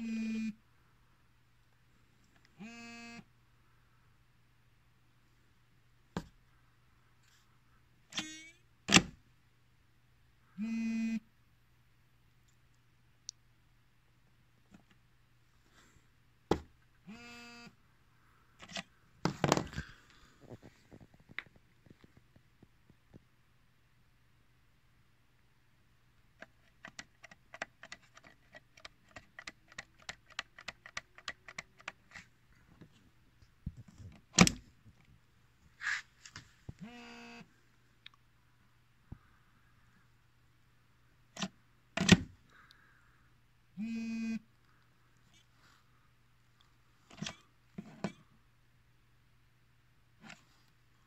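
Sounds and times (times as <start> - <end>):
low mains hum: 31.8 - 51.0.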